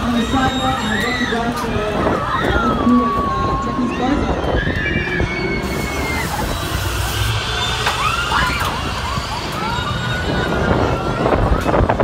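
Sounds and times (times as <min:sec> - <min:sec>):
wind on microphone: 0:00.0 - 0:07.0, 0:08.4 - 0:12.0
steady low rumble: 0:00.0 - 0:12.0
high shrieks: 0:04.5 - 0:11.5.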